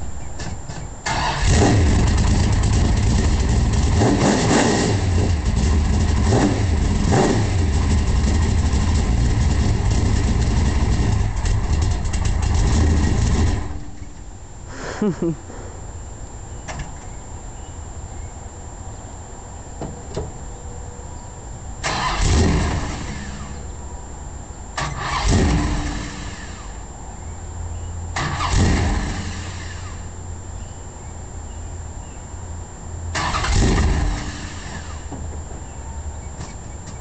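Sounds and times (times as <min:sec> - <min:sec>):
car engine idling: 0:00.0 - 0:16.5, 0:21.8 - 0:37.0
engine revving: 0:00.4 - 0:14.1, 0:21.8 - 0:23.6, 0:24.8 - 0:26.9, 0:28.1 - 0:30.1, 0:33.1 - 0:35.1.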